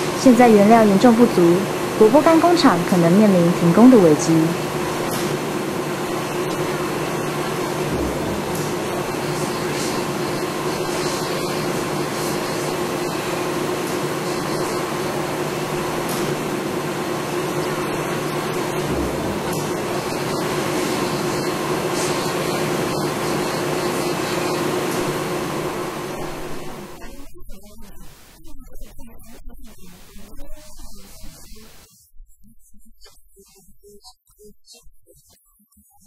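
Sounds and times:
people talking: 0:00.0 - 0:04.6, 0:27.0 - 0:31.8
machinery drone: 0:00.0 - 0:27.2.

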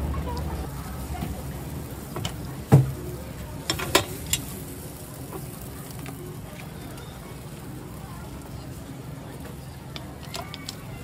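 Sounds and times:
batter sizzling: 0:00.0 - 0:11.0.

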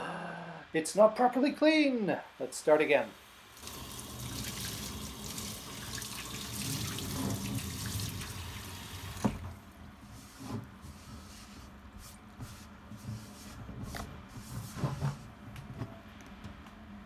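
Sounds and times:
sponge rubbing on skillet: 0:10.0 - 0:15.3.

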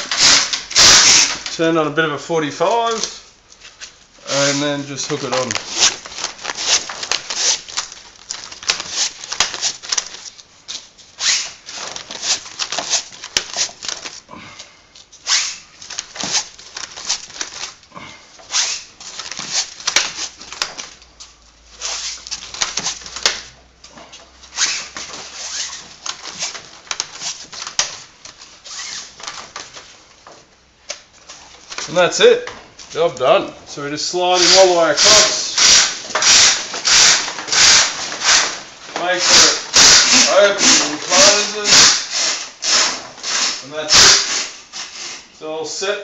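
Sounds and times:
fabric rustling: 0:02.6 - 0:14.3, 0:18.4 - 0:32.1.

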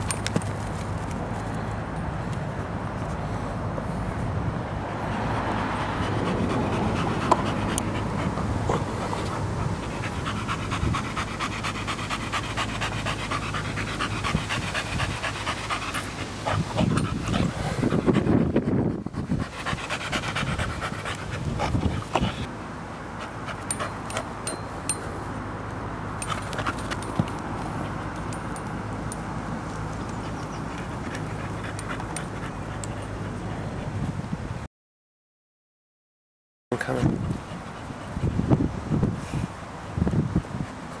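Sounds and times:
dog panting: 0:05.7 - 0:22.5.

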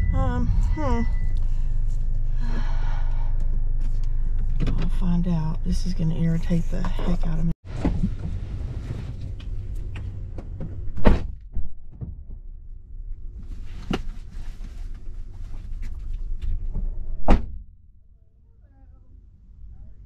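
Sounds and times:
low cabin rumble: 0:00.0 - 0:20.0
thunks and knocks inside car: 0:10.3 - 0:12.4.

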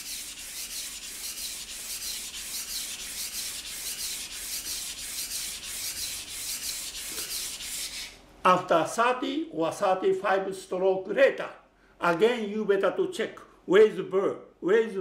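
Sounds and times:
knife scraping on whetstone: 0:00.0 - 0:08.2.

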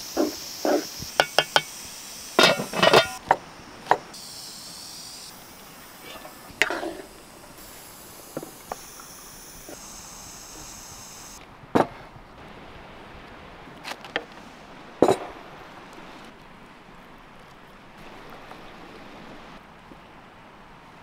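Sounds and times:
steady hiss: 0:00.0 - 0:11.4
metal spoon knocking on wood: 0:01.2 - 0:01.7.

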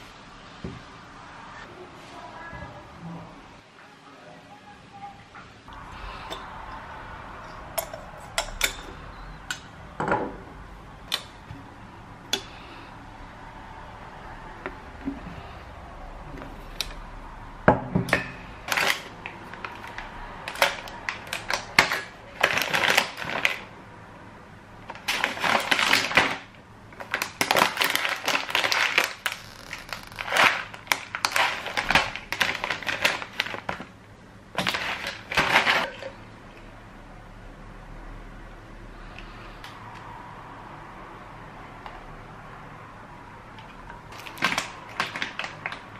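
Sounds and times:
items placed on countertop: 0:07.8 - 0:10.4
food packets rustling: 0:18.6 - 0:23.8, 0:24.8 - 0:34.0, 0:34.6 - 0:36.2, 0:44.1 - 0:45.9.

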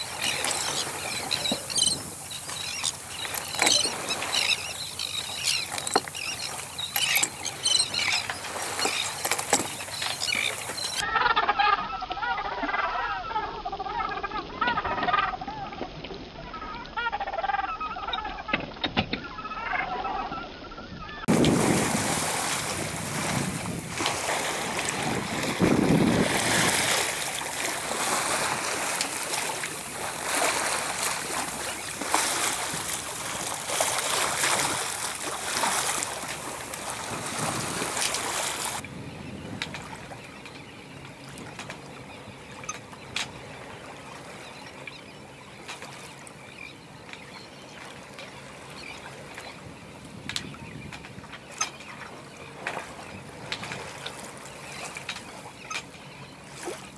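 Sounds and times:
water rushing and splashing: 0:00.0 - 0:11.1, 0:21.1 - 0:39.0
wind buffeting microphone: 0:21.3 - 0:28.8, 0:36.9 - 0:40.2.

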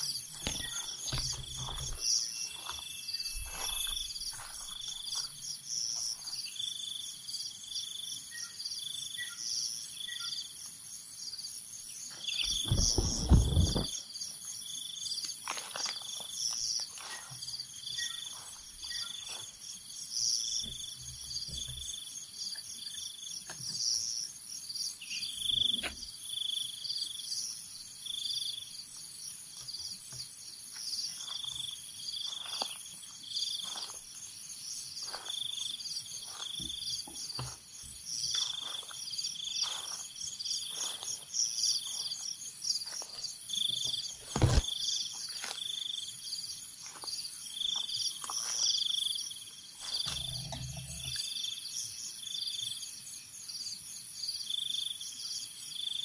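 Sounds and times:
high chirping calls: 0:00.0 - 0:05.3
high insect drone: 0:00.0 - 0:56.0
footsteps crunching through dry leaves: 0:00.3 - 0:05.4, 0:31.2 - 0:34.2, 0:35.0 - 0:37.7, 0:38.3 - 0:45.7, 0:46.8 - 0:48.8
loud thump: 0:12.5 - 0:13.9.

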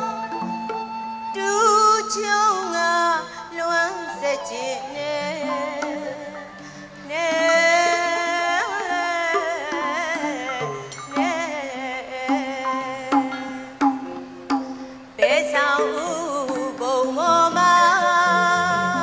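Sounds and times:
person singing ornamented melody: 0:01.3 - 0:14.2, 0:14.8 - 0:19.0
low instrumental notes: 0:05.0 - 0:19.0.

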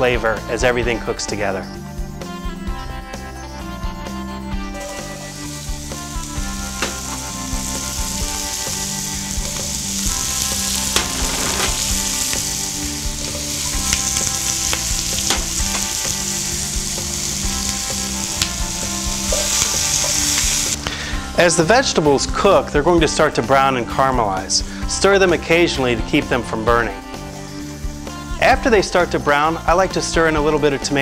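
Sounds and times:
vegetables sizzling in a pot: 0:04.8 - 0:20.9.

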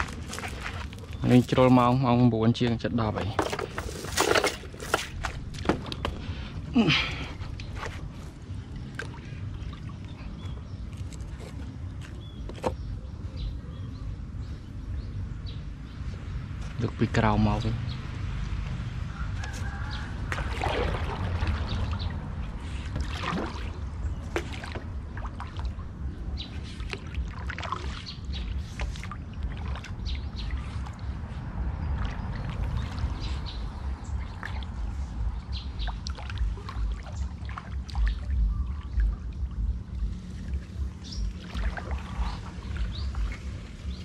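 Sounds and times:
paddle splashes: 0:00.0 - 0:01.4, 0:19.6 - 0:44.0
birds chirping: 0:00.0 - 0:44.0
water knocking against hull: 0:03.2 - 0:06.2, 0:22.9 - 0:25.9, 0:35.8 - 0:40.2
steady low rumble: 0:04.6 - 0:44.0.

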